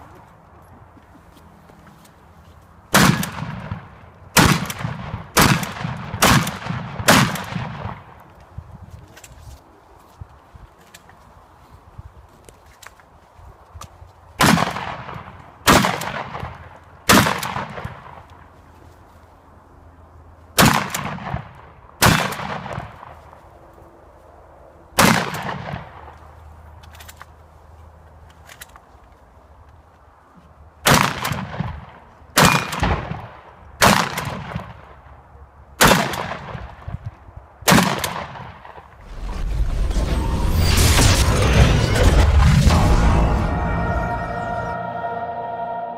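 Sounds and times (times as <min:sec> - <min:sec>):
shotgun shots: 0:02.9 - 0:08.1, 0:14.4 - 0:18.1, 0:20.6 - 0:23.0, 0:25.0 - 0:26.0, 0:30.9 - 0:31.8, 0:32.4 - 0:34.8, 0:35.8 - 0:36.7, 0:37.7 - 0:38.7.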